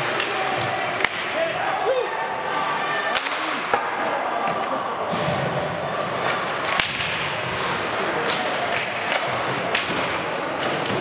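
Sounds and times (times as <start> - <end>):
hockey sticks and puck clacking: 0.0 - 1.7, 2.8 - 11.0
arena crowd hubbub: 0.0 - 11.0
skates scraping ice: 2.4 - 11.0.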